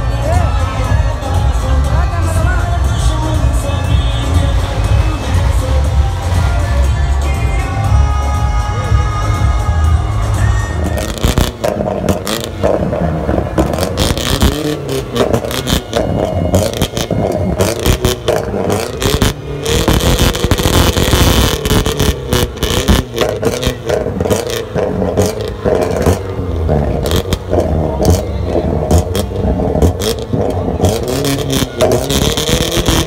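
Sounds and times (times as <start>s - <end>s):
car engine revving hard: 10.3s - 33.0s
exhaust cracks and pops: 11.0s - 33.0s.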